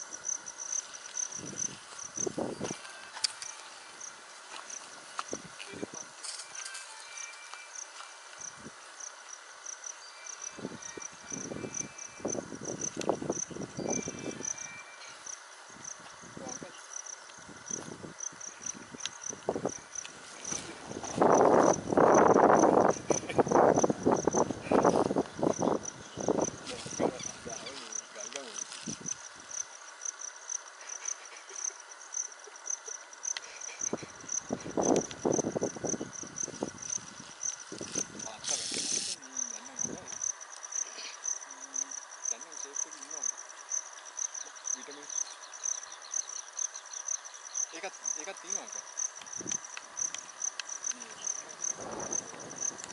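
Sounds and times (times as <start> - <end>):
continuous insect buzz: 0.0 - 52.9
insects trilling: 0.0 - 52.9.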